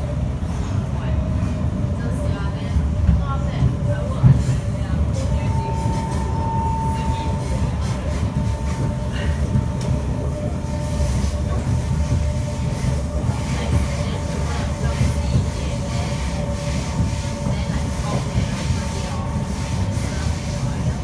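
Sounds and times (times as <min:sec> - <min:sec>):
train wheels rumbling on rail: 0:00.0 - 0:21.0
steady high tone: 0:05.2 - 0:09.2.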